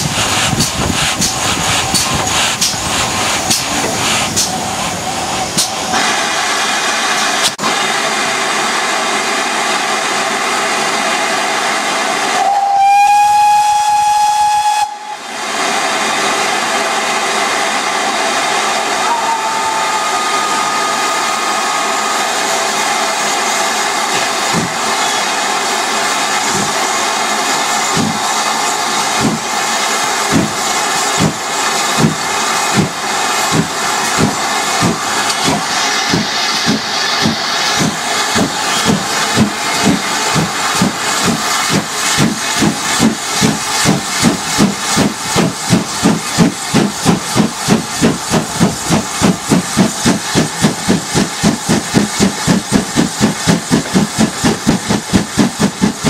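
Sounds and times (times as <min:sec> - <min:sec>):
steam hissing: 0:00.0 - 0:56.0
steam whistle blast: 0:12.4 - 0:15.3, 0:19.0 - 0:22.1.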